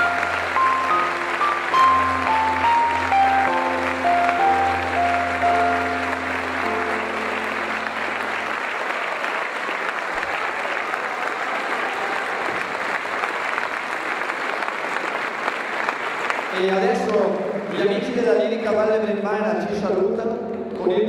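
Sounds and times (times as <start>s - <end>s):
keyboard held notes: 0.0s - 9.5s
audience applauding: 0.0s - 18.2s.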